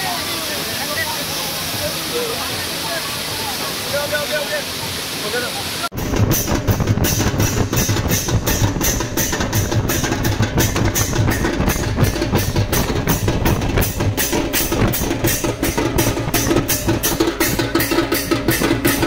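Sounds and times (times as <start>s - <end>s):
steel drum beaten in rhythm: 6.0s - 19.0s.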